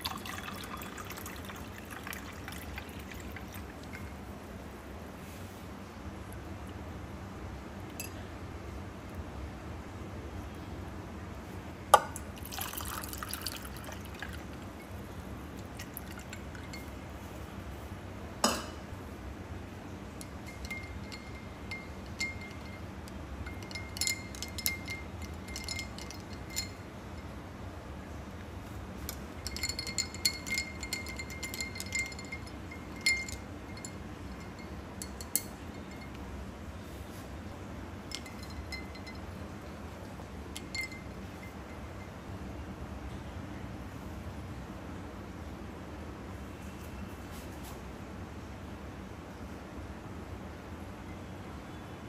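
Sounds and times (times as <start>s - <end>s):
ice cubes clinking in a glass: 23.5s - 26.8s, 29.5s - 36.1s.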